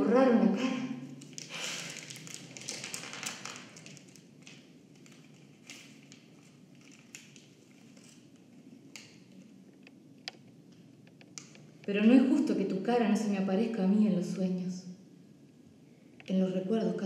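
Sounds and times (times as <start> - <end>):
crumpled sheet rustling: 1.2 - 9.5.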